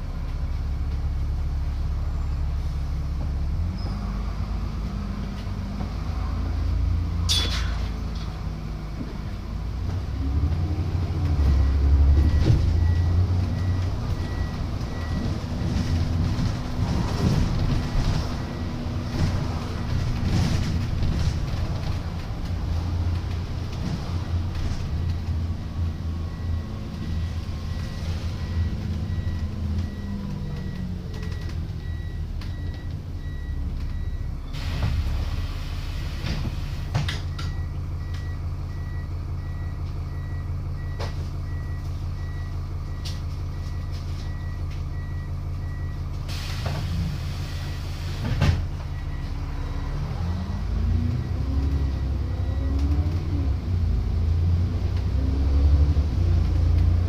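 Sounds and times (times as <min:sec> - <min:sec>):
bus engine idling and revving: 0:00.0 - 0:57.0.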